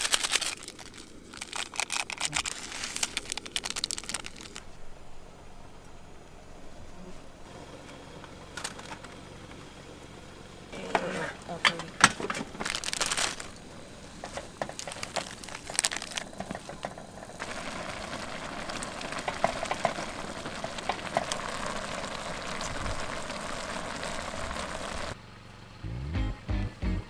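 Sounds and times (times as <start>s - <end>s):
knocks and crinkles of packets: 0.0s - 4.6s, 11.7s - 13.6s, 14.2s - 17.4s
boiling pot hiss: 0.0s - 25.2s.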